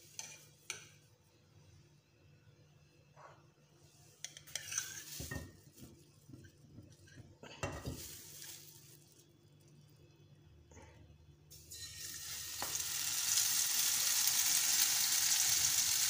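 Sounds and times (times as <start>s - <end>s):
frying pan scraping on grate: 4.5s - 5.7s.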